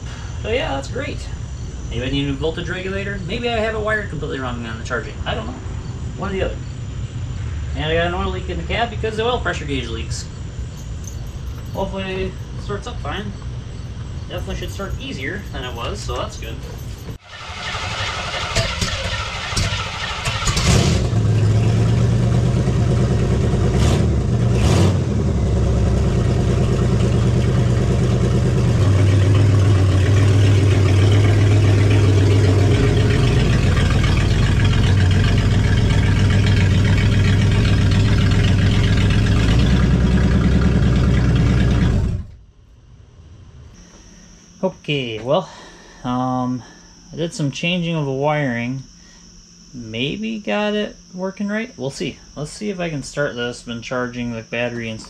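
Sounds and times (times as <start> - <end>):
engine running steadily: 0.0 - 47.2
engine starter cranking: 14.7 - 24.8, 26.0 - 42.4.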